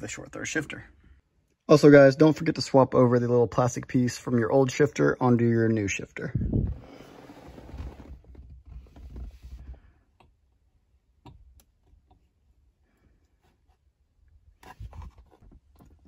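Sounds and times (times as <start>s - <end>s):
faint rustling and handling: 6.5s - 10.0s.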